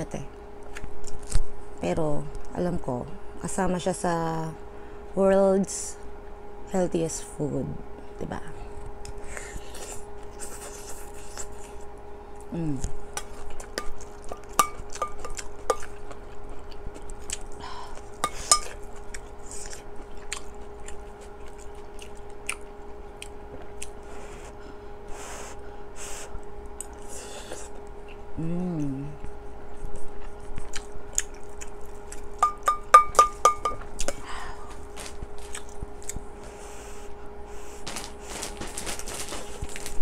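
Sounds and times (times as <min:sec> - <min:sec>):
faint hum: 0:00.0 - 0:40.0
chewing: 0:13.2 - 0:24.1, 0:29.2 - 0:32.7, 0:34.9 - 0:36.3
metal spoon clinking on pot: 0:32.4 - 0:33.8.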